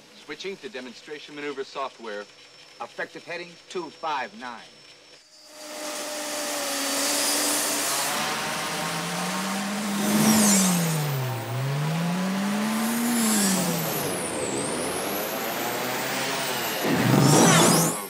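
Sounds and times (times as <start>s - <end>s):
drone engine whining: 5.3s - 18.0s.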